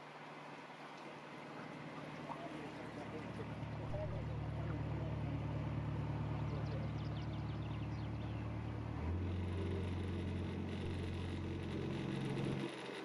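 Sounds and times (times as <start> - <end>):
boat diesel engine running: 0.0 - 13.0.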